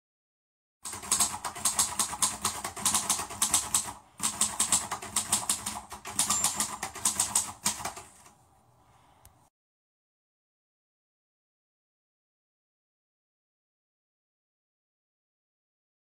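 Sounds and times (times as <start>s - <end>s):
rapid clicking: 0.8s - 8.3s.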